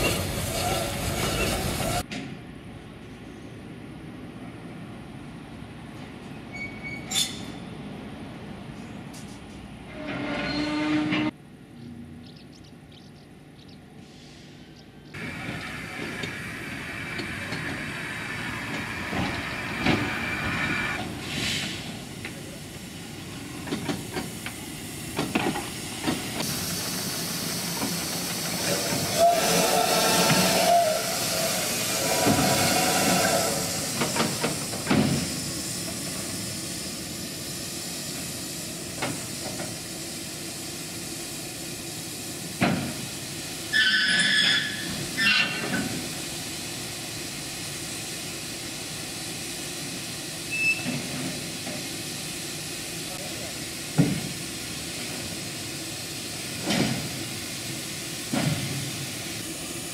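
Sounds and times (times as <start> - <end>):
steam locomotive hissing: 0.0 - 2.1, 14.0 - 59.9
brief squealing tones: 6.5 - 7.6.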